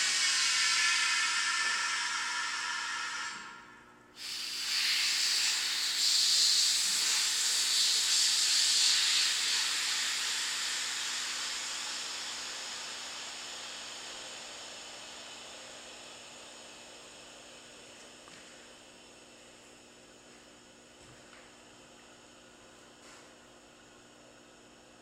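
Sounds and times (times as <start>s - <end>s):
compressed air hissing: 0.0s - 3.6s, 4.2s - 15.5s.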